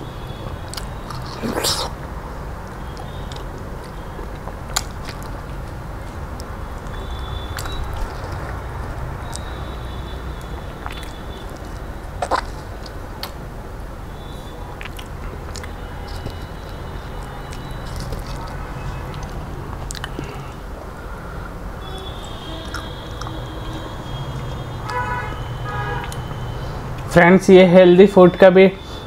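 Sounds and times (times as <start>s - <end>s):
mouth clicks: 0.5s - 2.0s, 10.4s - 13.4s, 14.8s - 20.6s, 22.6s - 25.0s, 26.0s - 26.4s.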